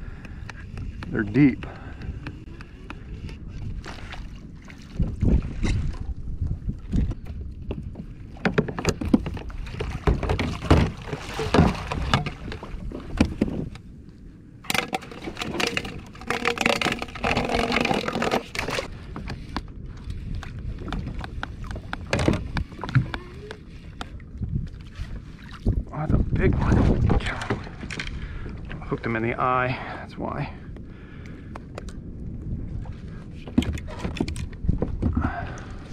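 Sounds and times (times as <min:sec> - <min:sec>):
fishing gear knocking and rustling: 0:07.2 - 0:13.8, 0:14.6 - 0:19.7, 0:20.8 - 0:24.1, 0:33.4 - 0:35.3.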